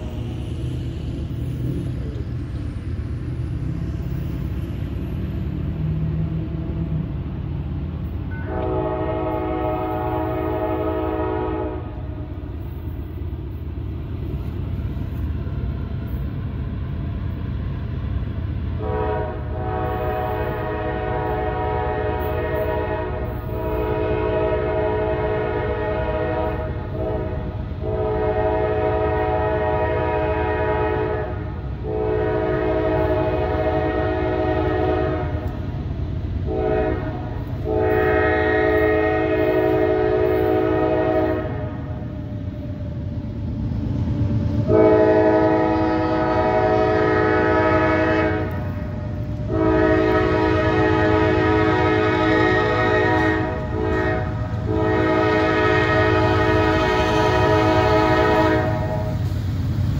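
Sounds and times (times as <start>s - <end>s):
passing train rumble: 0.0s - 59.9s
locomotive air horn blasts: 8.3s - 12.2s, 18.8s - 35.6s, 36.4s - 42.0s, 44.6s - 59.2s.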